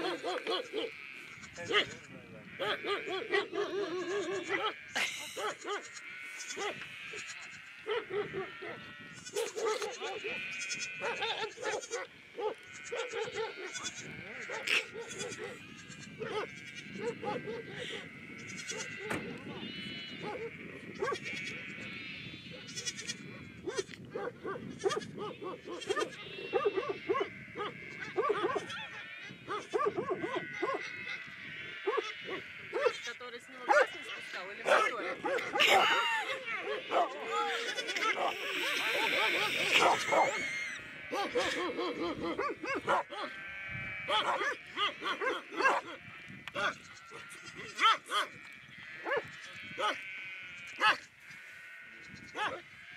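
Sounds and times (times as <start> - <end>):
dogs barking aggressively: 0.0 - 5.9, 6.5 - 21.6, 23.6 - 33.0, 33.7 - 46.0, 47.8 - 48.4, 49.0 - 50.1
sheep bleating: 0.0 - 52.9.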